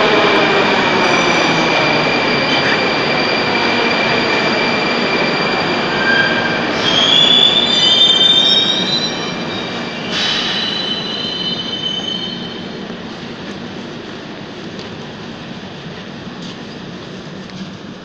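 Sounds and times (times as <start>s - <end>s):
metro train running whine: 0.0s - 18.0s
wheel and brake squeal: 5.9s - 12.6s.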